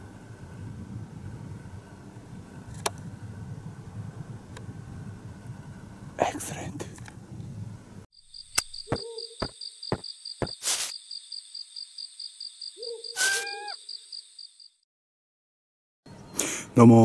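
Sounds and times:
cricket trill: 8.1s - 14.8s
owl hoots: 8.8s - 9.5s, 12.8s - 13.9s.

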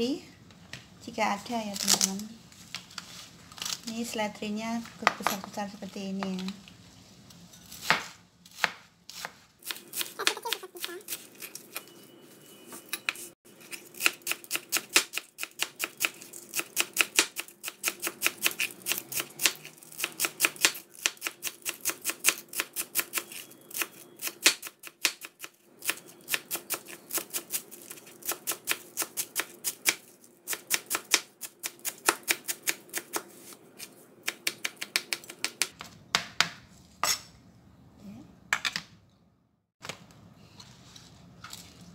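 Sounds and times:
knife chopping on cutting board: 7.8s - 11.3s.

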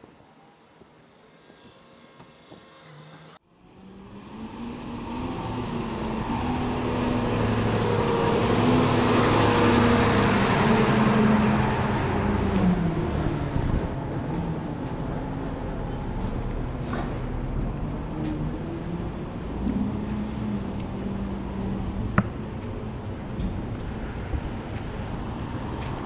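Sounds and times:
traffic hum: 0.0s - 26.0s
vehicle passing by: 2.8s - 14.7s.

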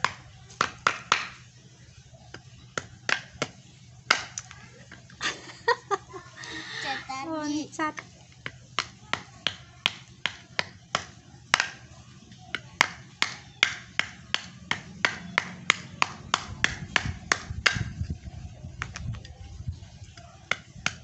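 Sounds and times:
knife chopping nuts on wooden board: 0.0s - 1.4s, 2.3s - 4.5s, 8.4s - 17.9s.

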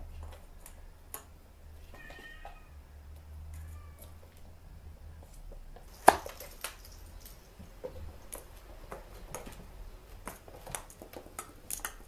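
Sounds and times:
cat toys tapping and rattling: 5.5s - 12.0s.

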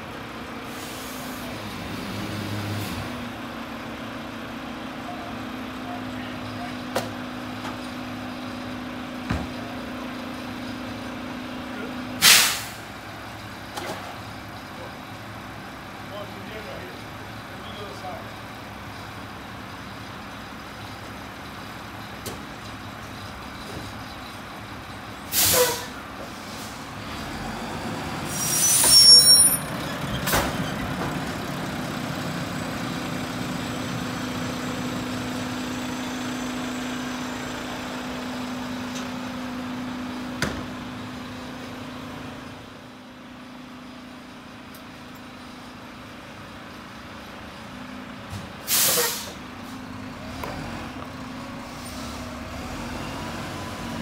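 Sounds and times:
garbage truck running: 0.0s - 54.0s
air brake hisses: 0.7s - 1.4s, 12.2s - 12.9s, 25.3s - 26.8s, 28.3s - 29.5s, 48.6s - 49.4s.

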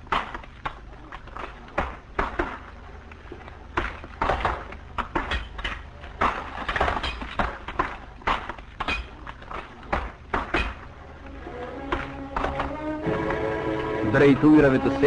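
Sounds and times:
sharp knocks and clatter: 3.7s - 10.9s.

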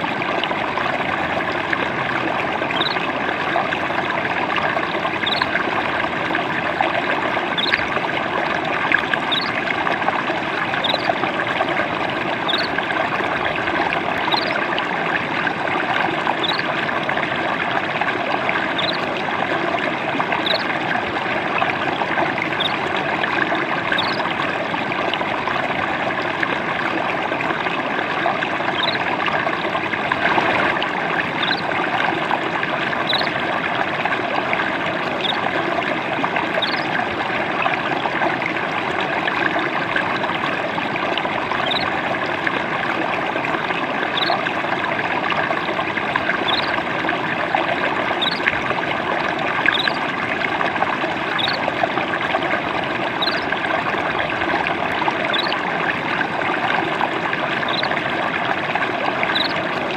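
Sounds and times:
trickling babbling water: 0.0s - 59.9s.

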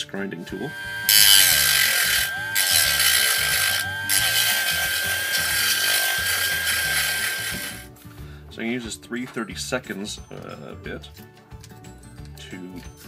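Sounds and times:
rotary tool motor whining: 0.4s - 7.8s
grinding into plastic: 0.5s - 7.8s.

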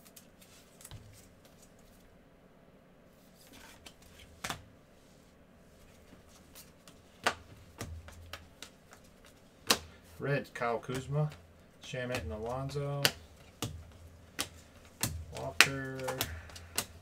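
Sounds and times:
cards sliding and rubbing: 3.2s - 10.2s, 12.1s - 17.0s.

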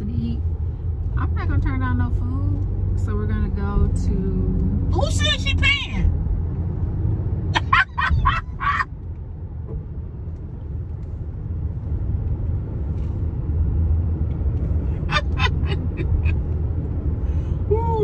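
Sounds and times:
road and engine rumble in a car: 0.0s - 18.0s
people laughing: 15.1s - 16.3s.

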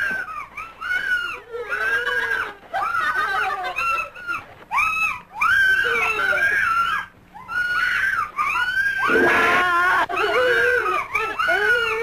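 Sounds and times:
woman screaming: 7.6s - 12.0s.

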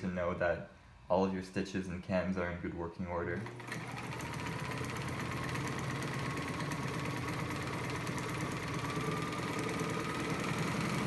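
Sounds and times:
sewing machine motor whine: 3.4s - 11.0s.

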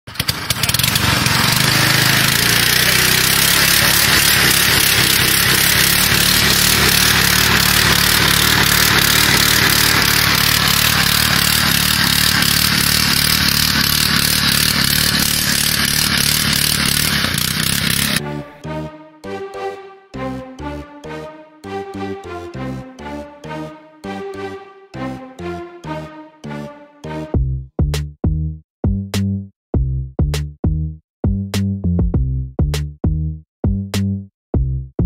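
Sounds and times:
small petrol engine running: 0.1s - 27.2s.

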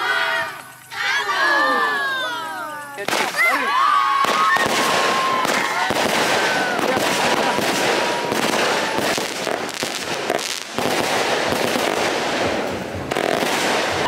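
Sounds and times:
fireworks crackling: 0.0s - 14.0s
loud firework burst: 3.0s - 14.0s.

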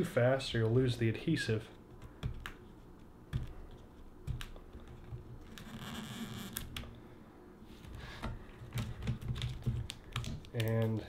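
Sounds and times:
adhesive tape peeling: 4.4s - 6.9s
fingers clicking and scraping plastic: 8.2s - 11.0s.

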